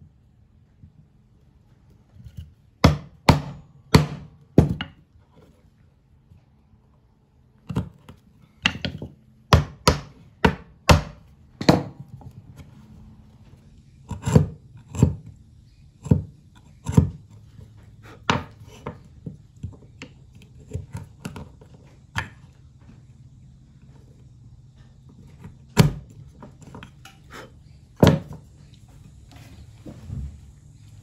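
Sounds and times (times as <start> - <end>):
chisel chopping into wood: 2.8 - 5.0, 8.6 - 12.0, 14.1 - 15.3, 18.2 - 19.7, 25.4 - 26.8, 28.0 - 28.4.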